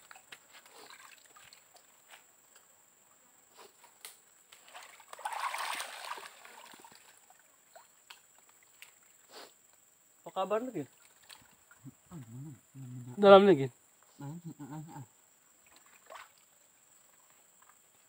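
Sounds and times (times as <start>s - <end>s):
small water splashes: 0.0s - 1.9s, 4.6s - 9.2s, 10.8s - 11.9s, 15.6s - 17.2s
stream water sloshing and trickling: 0.0s - 2.4s, 3.8s - 9.3s, 10.7s - 12.0s, 15.5s - 17.9s.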